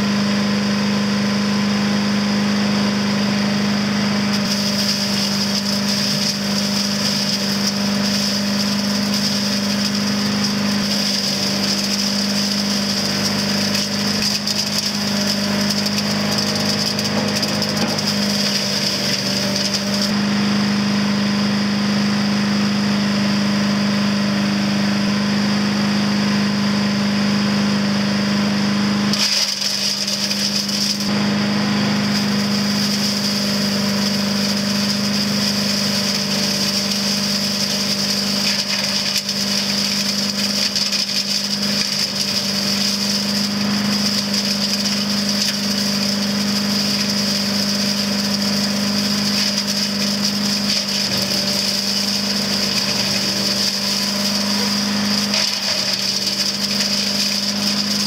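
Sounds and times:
small engine running: 0.0 - 58.0
rattling leaf shredding: 3.0 - 20.2, 29.1 - 58.0.

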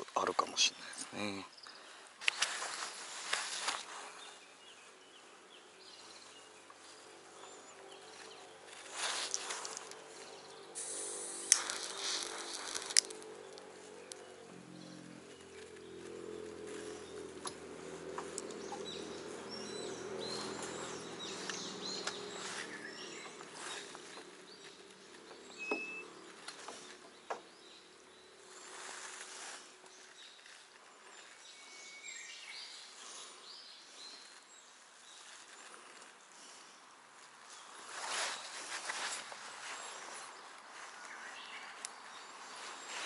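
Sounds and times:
bird chirps: 1.5 - 34.6
low steady hum: 4.0 - 26.5
hands clicking and rustling: 8.7 - 10.7, 11.4 - 14.3, 16.4 - 25.3.

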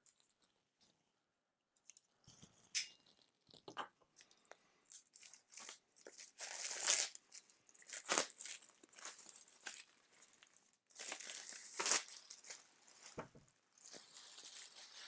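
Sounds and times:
plastic shrink-wrap tearing and crinkling: 4.9 - 15.0.

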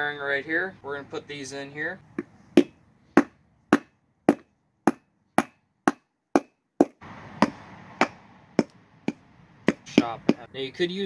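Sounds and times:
rubber mallet tapping metal: 2.2 - 10.5.

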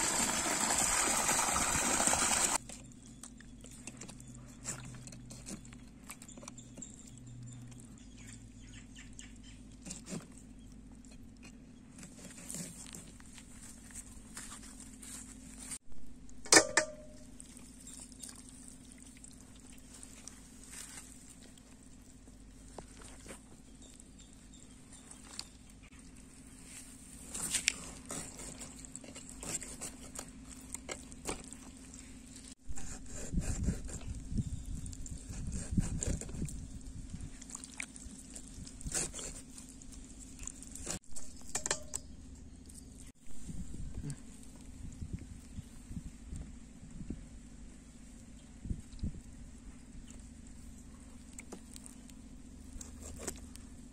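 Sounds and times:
steady low hum: 2.6 - 53.9
wet squelches and patters: 17.3 - 23.3, 36.4 - 41.0, 48.2 - 53.6.

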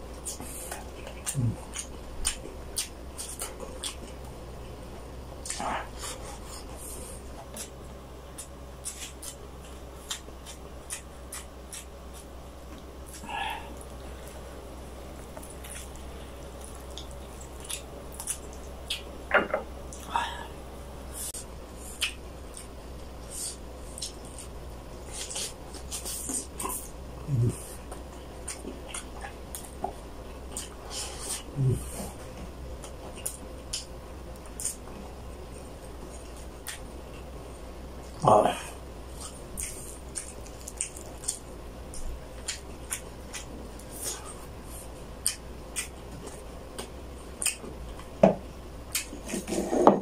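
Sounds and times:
steady low hum: 0.0 - 50.0
person chewing: 0.1 - 4.4, 5.4 - 14.4, 15.1 - 19.1, 21.2 - 48.1, 48.9 - 49.8
man humming low: 27.2 - 27.7, 31.4 - 32.2, 38.2 - 38.8.

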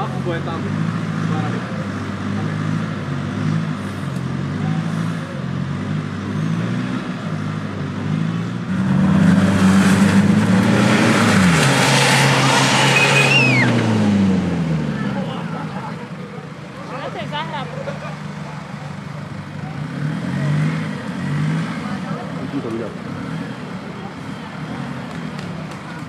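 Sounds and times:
off-road vehicle engine revving: 0.0 - 26.0
rushing noise: 8.7 - 14.9.

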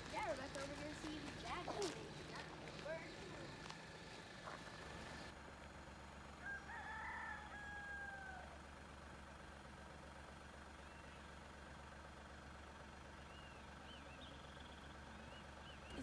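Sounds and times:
car engine hum: 0.0 - 16.0
rooster crowing: 6.4 - 8.6
faint bird chirps: 10.7 - 11.4, 13.1 - 16.0.

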